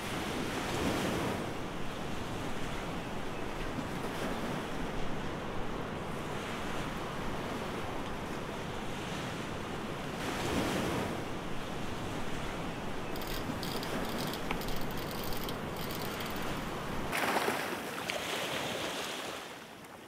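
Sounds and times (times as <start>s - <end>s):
sea water washing: 13.1s - 19.4s.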